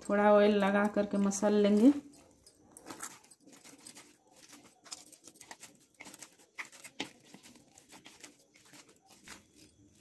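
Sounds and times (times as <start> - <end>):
dough squishing and slapping: 2.7 - 10.0.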